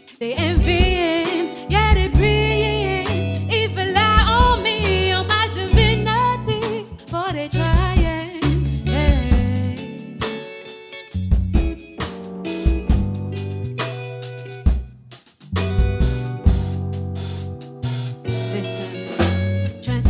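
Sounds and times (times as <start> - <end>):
woman singing: 0.0 - 10.2, 18.4 - 20.0
live band playing: 0.0 - 20.0.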